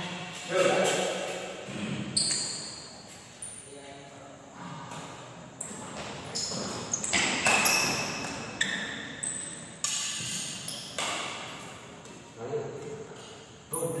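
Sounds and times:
badminton racket hits: 9.8s - 11.7s.

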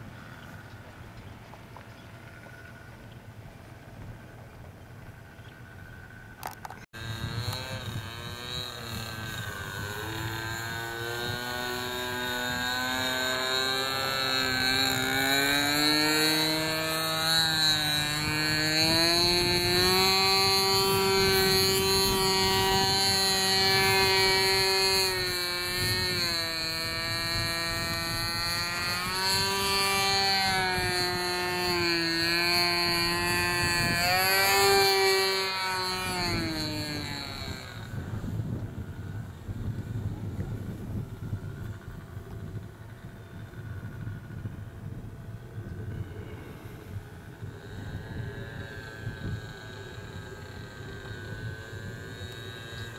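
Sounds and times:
model plane engine buzzing: 0.0s - 52.9s.

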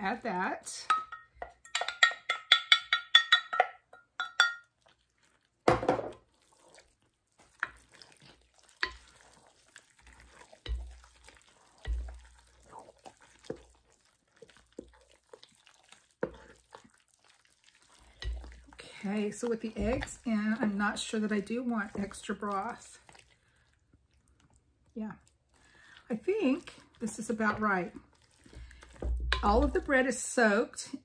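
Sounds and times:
spoon stirring wet bread: 0.6s - 30.8s
spoon clinking against glass cup: 0.9s - 4.7s
glass cup clunk set down: 5.7s - 6.1s.

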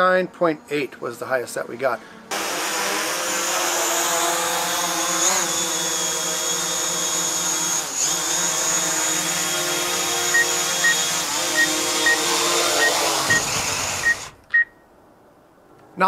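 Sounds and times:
drone propellers whining: 10.3s - 14.5s.

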